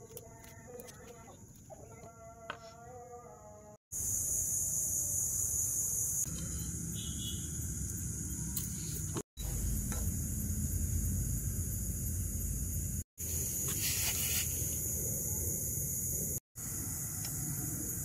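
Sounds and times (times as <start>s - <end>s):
crickets chirring: 3.9s - 9.0s, 9.6s - 18.0s.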